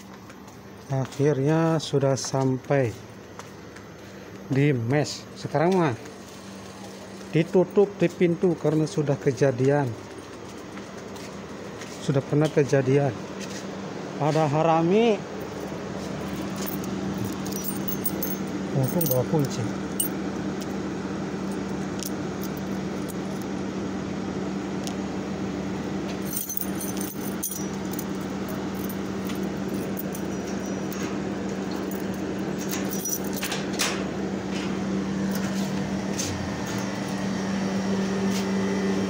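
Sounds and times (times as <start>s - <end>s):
machine hum: 14.8s - 39.0s
keys jangling: 15.4s - 20.7s, 21.5s - 23.5s, 26.1s - 34.0s.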